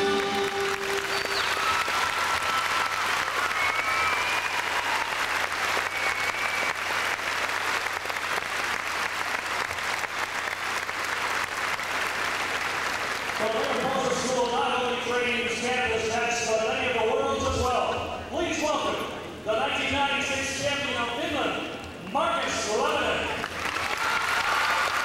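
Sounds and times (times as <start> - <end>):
audience clapping: 0.0 - 14.3, 23.3 - 25.0.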